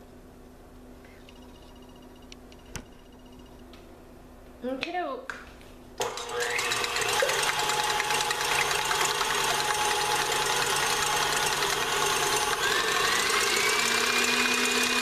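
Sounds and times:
stand mixer whisking: 0:06.0 - 0:15.0.

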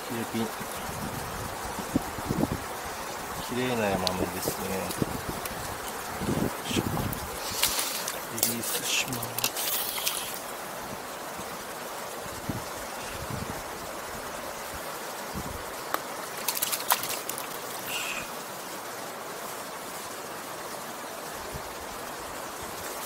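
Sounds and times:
mountain stream over stones: 0:00.0 - 0:23.0
hands splashing in shallow water: 0:07.4 - 0:08.8, 0:09.4 - 0:10.4, 0:15.9 - 0:17.6.

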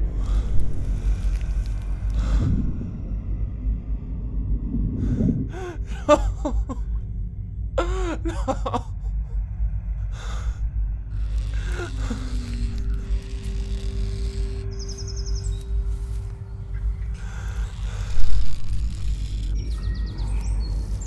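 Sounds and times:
low rumbling drone: 0:00.0 - 0:21.0
man sobbing and wailing: 0:05.5 - 0:07.0, 0:07.8 - 0:09.4.

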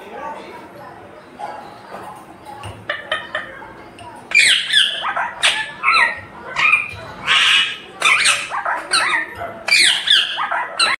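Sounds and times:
parakeet squawking: 0:04.3 - 0:11.0.

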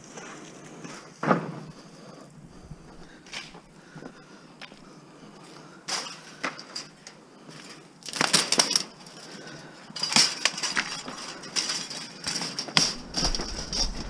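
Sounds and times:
scrap metal clanking: 0:10.0 - 0:14.0.

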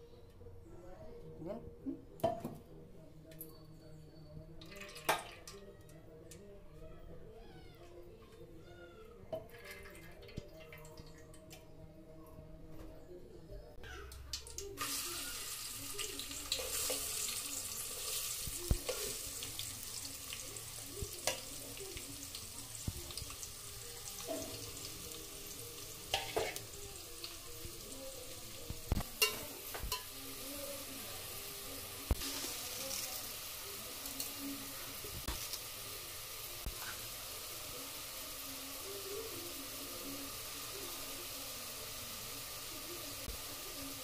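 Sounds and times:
onions sizzling in hot oil: 0:14.8 - 0:44.0.

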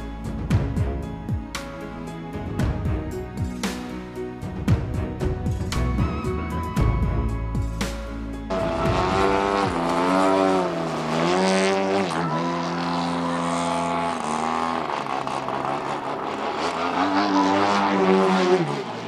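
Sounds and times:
model plane engine in flight: 0:08.5 - 0:19.0.

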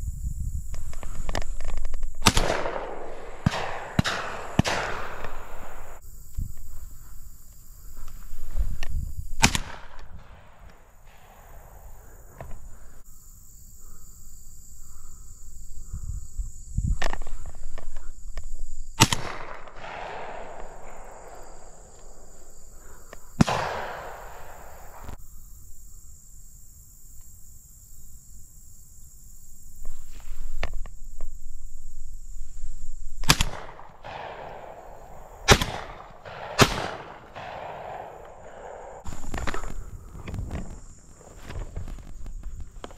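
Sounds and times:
shotgun shots with echo: 0:02.2 - 0:06.0, 0:09.4 - 0:12.6, 0:19.0 - 0:25.2, 0:33.2 - 0:39.5.

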